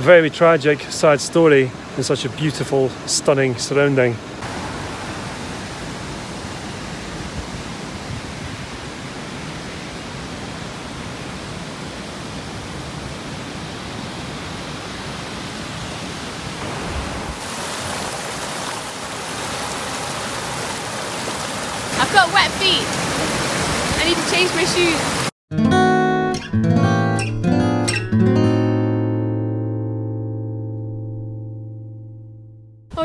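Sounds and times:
stream splashing over rocks: 0.2 - 25.3.

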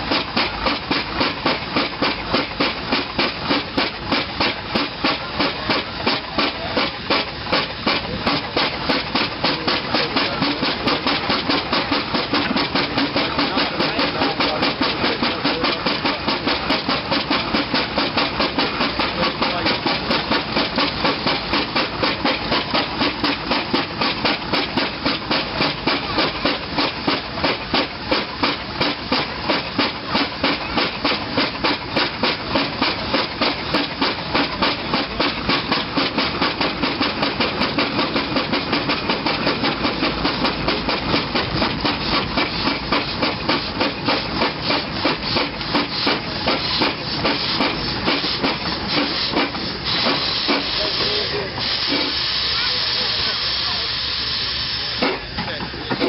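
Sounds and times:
steam engine exhaust beating: 0.0 - 56.0.

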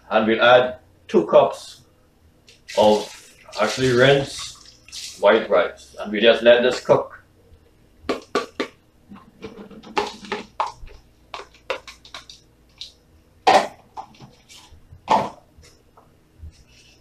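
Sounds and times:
plastic bowls clattering on counter: 8.1 - 12.9.

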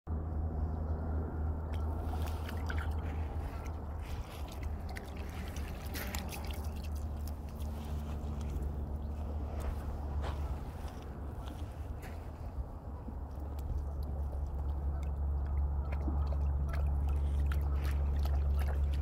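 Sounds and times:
low rumble: 0.1 - 19.0
dog paws splashing in water: 1.7 - 19.0
steps on gravel: 2.1 - 12.7.

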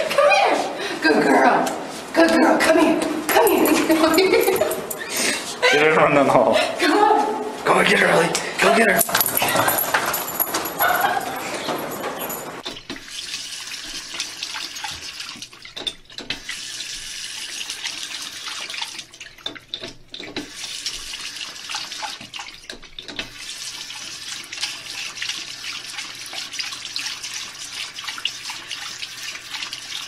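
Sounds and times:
water running from a faucet: 12.6 - 30.0.

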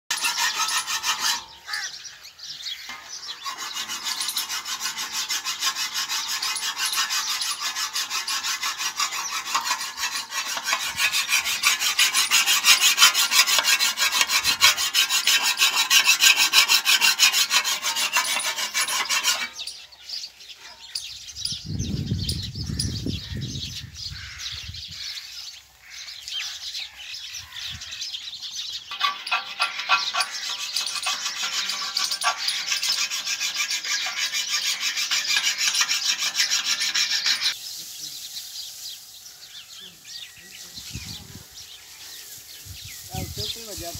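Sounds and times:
intermittent scraping: 0.0 - 2.0, 2.7 - 20.2, 26.4 - 39.4, 40.4 - 43.9
metal rasping of chaff cutter blade: 0.1 - 1.9, 2.9 - 19.8, 28.8 - 37.6.

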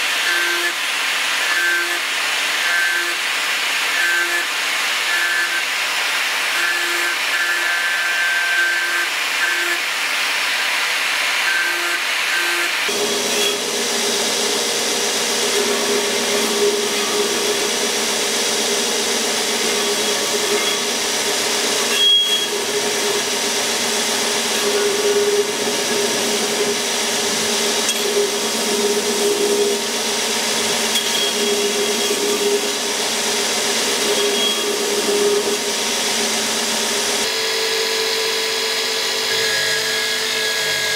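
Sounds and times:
angle grinder grinding steel: 0.0 - 40.9
belt grinder humming: 11.2 - 40.9.

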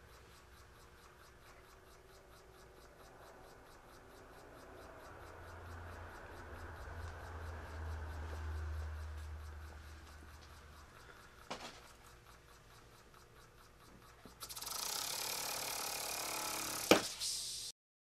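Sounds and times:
model steam engine exhaust puffing: 14.3 - 17.7.

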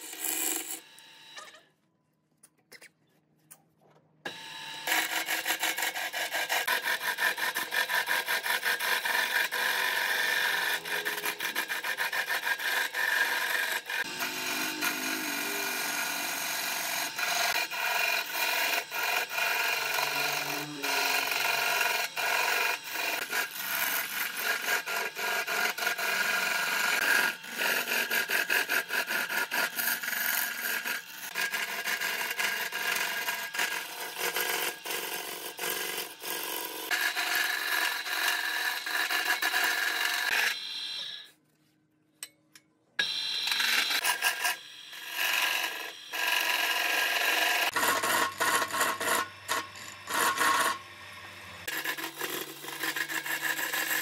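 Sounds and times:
lathe tool scraping wood: 4.3 - 41.2, 43.0 - 54.0.

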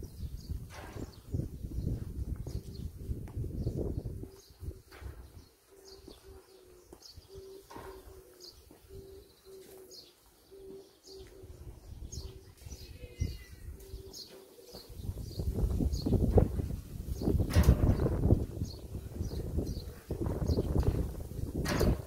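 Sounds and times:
bird repeating low note: 5.7 - 16.1.

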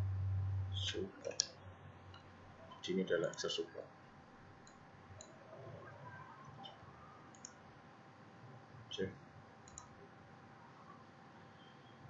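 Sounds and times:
faint computer mouse clicks: 7.3 - 7.6, 9.6 - 9.9.

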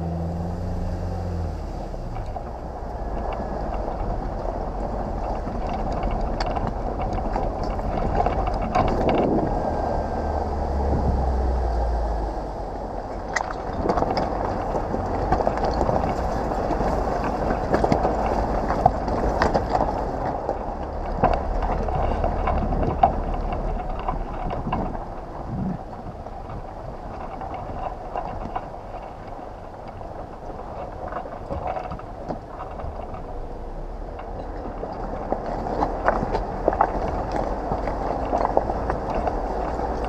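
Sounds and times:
off-road vehicle driving slowly: 0.0 - 40.0
tyres knocking over rocks: 13.1 - 33.4, 34.1 - 40.0.

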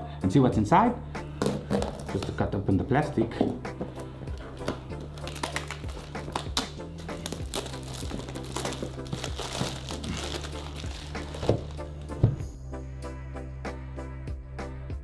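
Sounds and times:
background music: 0.0 - 15.0
plastic wrap crinkling: 4.3 - 12.3.

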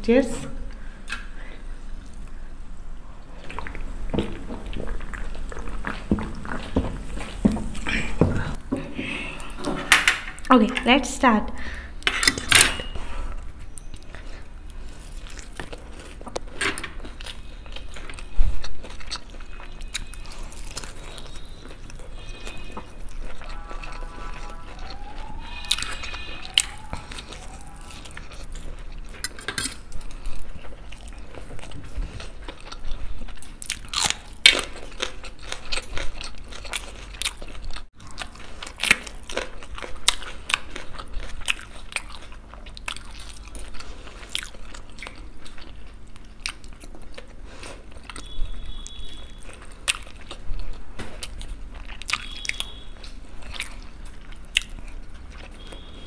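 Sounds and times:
wet chewing: 3.2 - 8.6, 13.1 - 56.0
fork scraping steel plate: 8.8 - 10.4.

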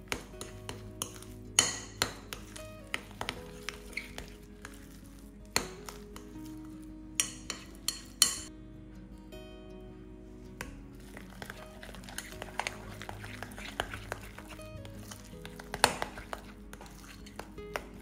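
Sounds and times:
soft background music: 0.0 - 18.0
fork scraping glass bowl: 0.1 - 6.4, 11.0 - 18.0.

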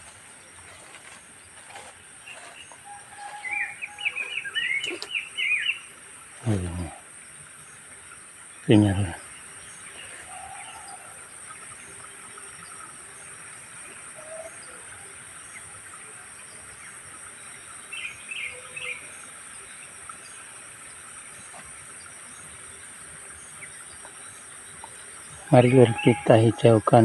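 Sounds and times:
bird chirps: 0.0 - 7.0
insects droning: 0.0 - 27.0.

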